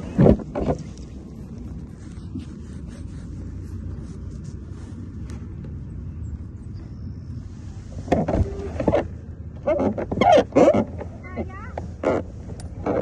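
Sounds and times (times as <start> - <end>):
cart wheels rolling on pavement: 0.0 - 13.0.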